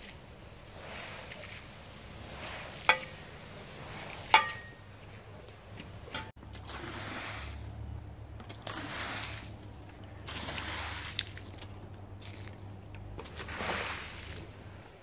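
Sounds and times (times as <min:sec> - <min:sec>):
water pouring onto wet carpet: 0:08.5 - 0:14.6.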